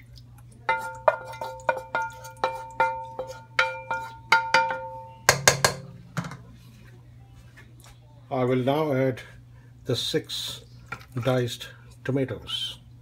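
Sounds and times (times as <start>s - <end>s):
pan tapping on pot rim: 0.7s - 6.4s.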